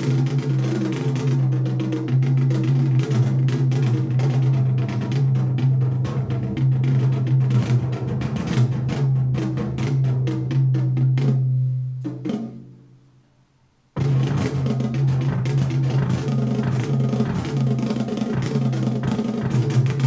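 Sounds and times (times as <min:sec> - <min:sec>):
drum-heavy music on loudspeakers: 0:14.0 - 0:20.0.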